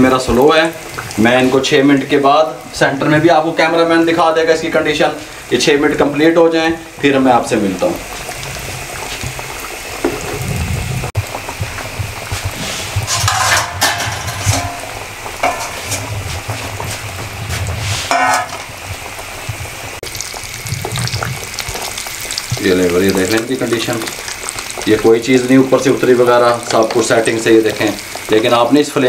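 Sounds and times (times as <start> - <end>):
deep-frying bubbling sizzle: 0.0 - 29.0
metal utensils scraping a pan: 12.6 - 14.8, 15.4 - 16.1, 17.8 - 18.6.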